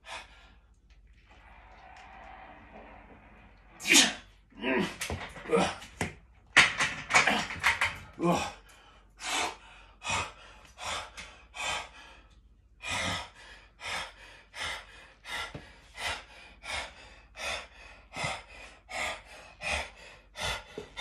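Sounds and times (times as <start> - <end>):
man panting hard: 8.2 - 21.0.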